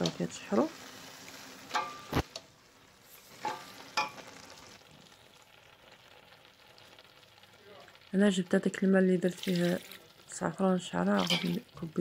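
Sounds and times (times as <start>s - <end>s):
chicken and onion sizzling in oil: 0.0s - 12.0s
utensil knocking and scraping pot: 3.3s - 4.3s.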